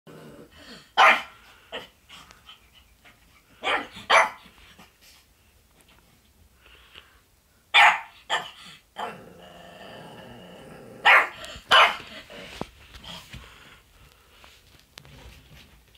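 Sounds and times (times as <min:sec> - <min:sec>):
dog barking: 0:01.0 - 0:01.9, 0:03.6 - 0:04.4, 0:07.7 - 0:08.6, 0:11.0 - 0:12.1.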